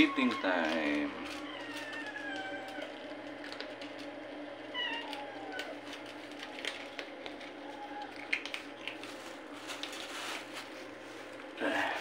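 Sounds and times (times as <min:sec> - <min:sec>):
cat meowing: 0:00.0 - 0:03.0, 0:04.7 - 0:05.8
cats eating from plastic tray: 0:00.0 - 0:12.0.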